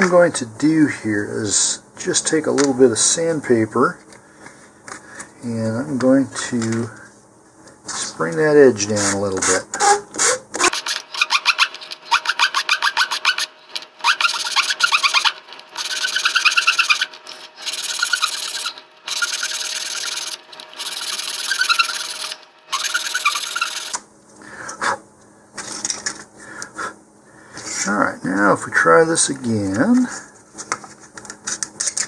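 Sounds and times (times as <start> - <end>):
sandpaper rubbing on wood: 8.9 - 23.8.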